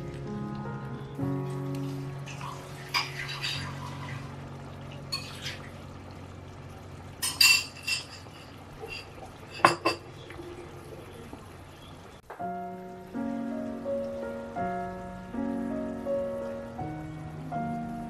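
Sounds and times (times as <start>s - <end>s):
sauce simmering and bubbling: 0.0s - 18.0s
utensils clinking cookware: 2.3s - 4.3s, 5.0s - 5.7s, 7.2s - 10.3s.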